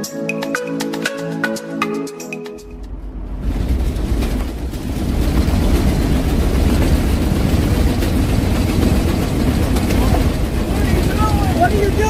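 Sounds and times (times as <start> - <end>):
engine and road noise rumble: 2.5 - 12.0.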